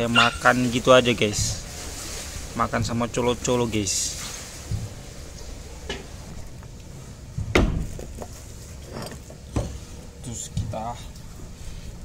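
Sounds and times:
plastic bag rustling: 0.0s - 7.2s.

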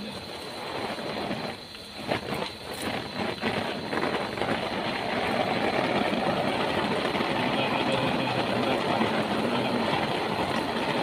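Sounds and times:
heavy rain on plastic: 0.0s - 11.0s.

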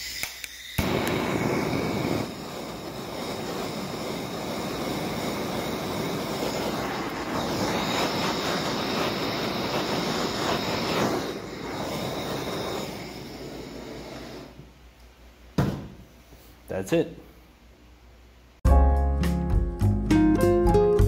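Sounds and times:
blowtorch flame rushing: 0.0s - 14.8s
gas hissing: 0.0s - 14.9s
blowtorch click: 0.0s - 15.8s.

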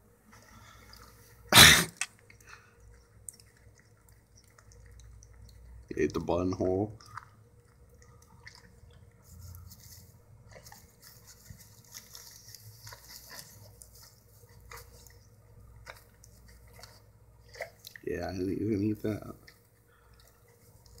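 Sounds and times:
dog licking and chewing: 2.1s - 21.0s
paper wrapper rustling: 9.2s - 17.9s.

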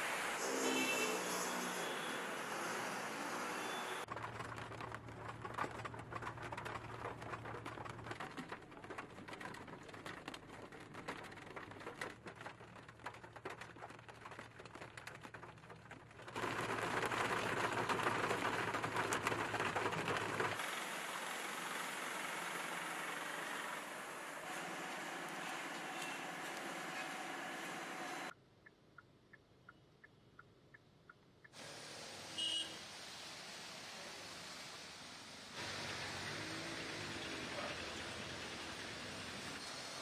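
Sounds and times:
heavy rain pattering: 4.1s - 24.0s.

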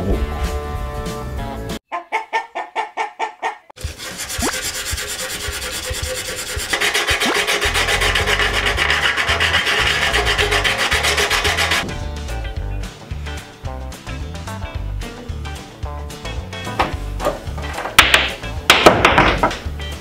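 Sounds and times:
sandpaper rubbing on metal: 3.8s - 11.9s
sharpening stone rasping on metal: 3.8s - 11.9s.

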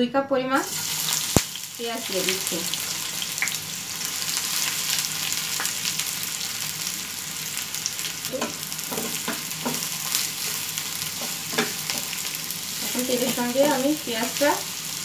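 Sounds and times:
onions sizzling in a frying pan: 0.5s - 15.0s
spatula scraping and knocking pan: 8.4s - 12.2s.

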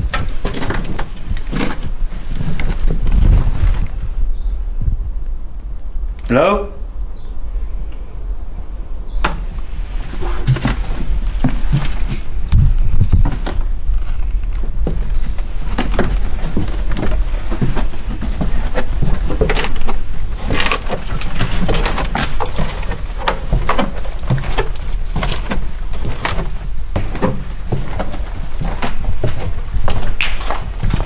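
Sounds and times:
scuffs and scrapes: 0.3s - 4.3s, 9.5s - 31.0s
footsteps on wooden stairs: 9.2s - 31.0s.

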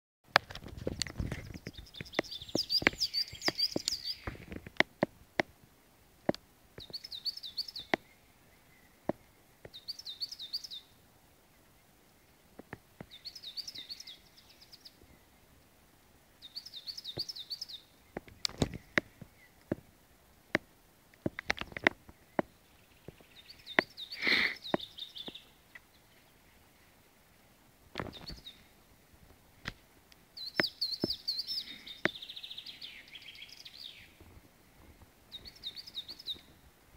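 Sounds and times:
sharp clicks and taps: 0.3s - 5.5s, 18.2s - 19.8s, 20.5s - 22.5s
songbird singing: 1.0s - 36.9s.

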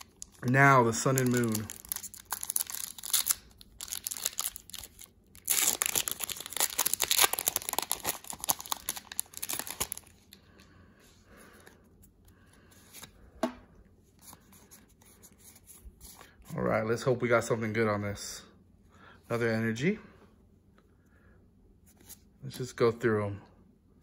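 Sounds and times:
foil wrapper tearing and crinkling: 0.0s - 10.1s.

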